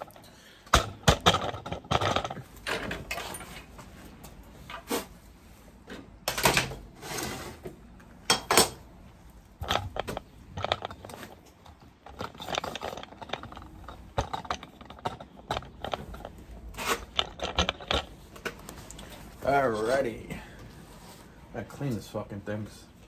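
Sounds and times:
scraping on steel: 0:06.9 - 0:07.7, 0:09.6 - 0:18.2.

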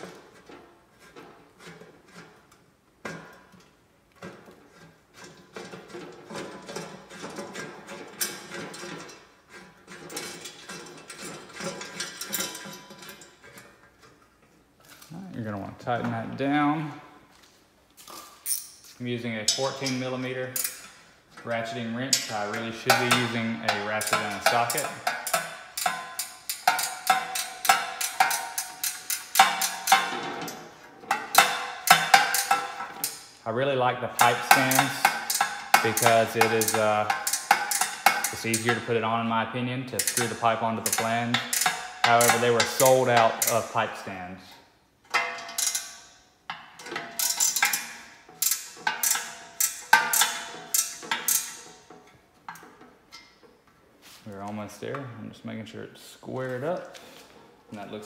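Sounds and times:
ratcheting wrench clinking on metal: 0:01.6 - 0:14.2, 0:18.1 - 0:33.4, 0:34.1 - 0:39.1, 0:39.9 - 0:43.8, 0:45.1 - 0:53.6
ratchet wrench clicking on metal: 0:22.9 - 0:30.1, 0:34.2 - 0:38.7, 0:45.4 - 0:46.0, 0:47.2 - 0:51.6.

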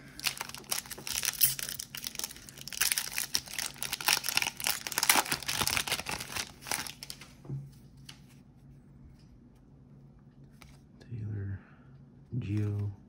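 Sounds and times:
wrapper crinkling: 0:00.1 - 0:07.3.

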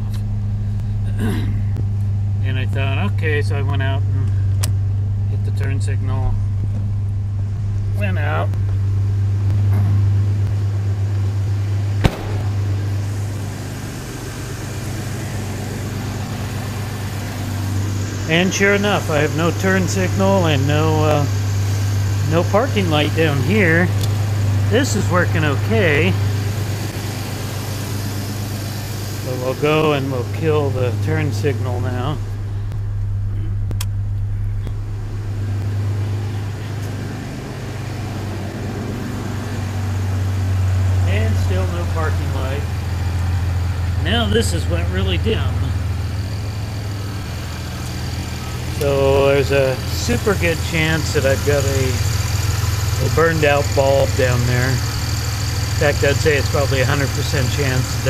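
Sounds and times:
pickup engine idling: 0:00.0 - 0:58.0
truck door shutting: 0:12.0 - 0:13.2.

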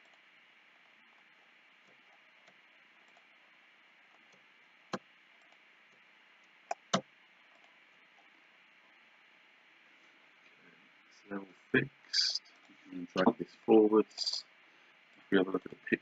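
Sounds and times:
faint steady hiss: 0:00.0 - 0:16.0
computer mouse clicks: 0:06.7 - 0:07.7.

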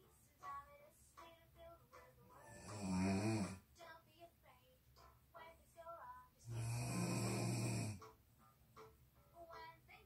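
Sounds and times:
person snoring: 0:02.4 - 0:03.6, 0:06.5 - 0:08.0.

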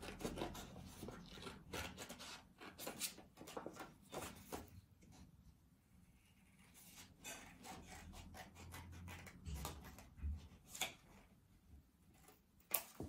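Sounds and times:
scissors snipping paper: 0:00.0 - 0:04.4, 0:06.6 - 0:11.3.

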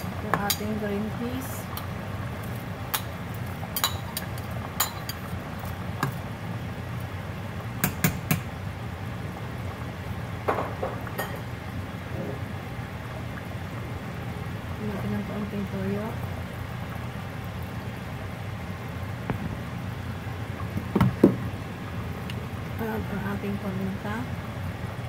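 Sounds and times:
stew bubbling: 0:00.0 - 0:25.0.

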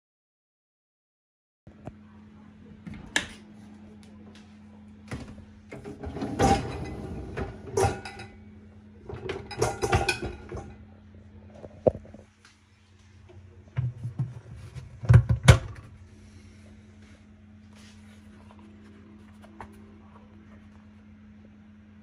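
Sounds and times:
steady low hum: 0:01.7 - 0:22.0
dishwasher racks rattling: 0:05.7 - 0:08.4, 0:09.0 - 0:10.8
pans clinking: 0:05.8 - 0:08.4, 0:09.1 - 0:10.8.

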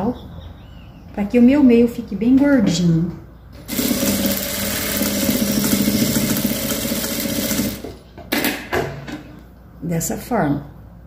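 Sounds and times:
sewing machine running: 0:03.6 - 0:08.0.

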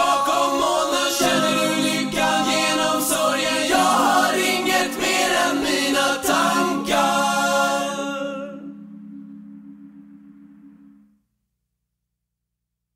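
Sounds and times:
layered voices singing pop: 0:00.0 - 0:08.8
held low note: 0:07.3 - 0:11.2.

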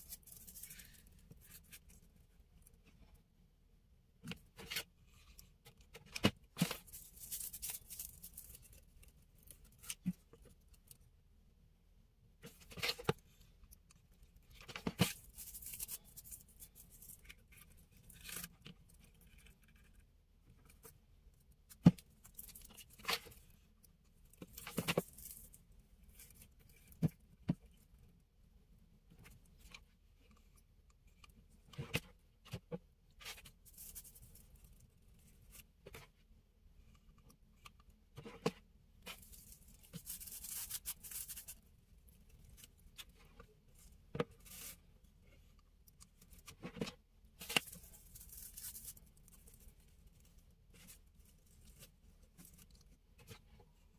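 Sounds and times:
paper rustling and scraping: 0:00.0 - 0:02.0, 0:06.0 - 0:10.2, 0:38.2 - 0:41.6, 0:46.2 - 0:53.5.

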